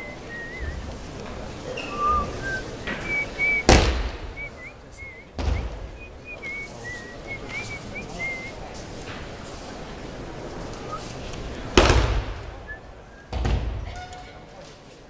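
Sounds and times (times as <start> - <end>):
wavering high chirps: 1.7 - 3.7
dull thump: 3.6 - 4.4, 5.4 - 6.1.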